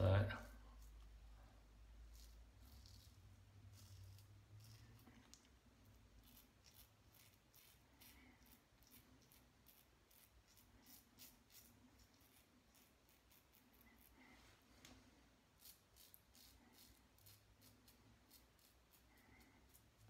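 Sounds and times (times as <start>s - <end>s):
razor scraping stubble: 2.1s - 5.4s, 15.6s - 19.1s.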